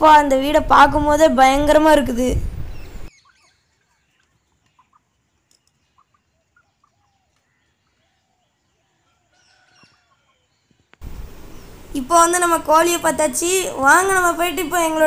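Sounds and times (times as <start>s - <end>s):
small birds chirping: 2.6s - 15.0s
chickens clucking: 3.0s - 10.8s.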